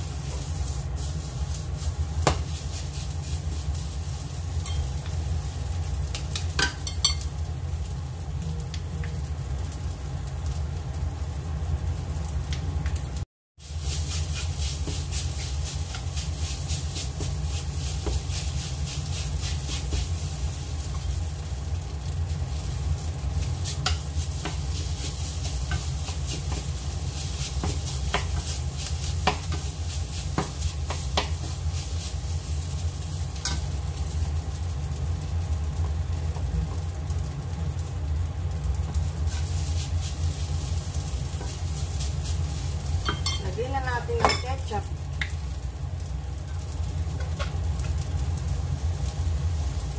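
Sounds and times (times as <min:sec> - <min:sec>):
light sizzle: 0:00.0 - 0:49.9
steady low hum: 0:00.0 - 0:49.9
spatula tapping pan: 0:02.2 - 0:02.6, 0:06.1 - 0:07.3, 0:23.6 - 0:31.6, 0:43.0 - 0:43.5, 0:44.2 - 0:44.5
spatula scraping frying pan: 0:13.6 - 0:21.2, 0:23.4 - 0:32.6.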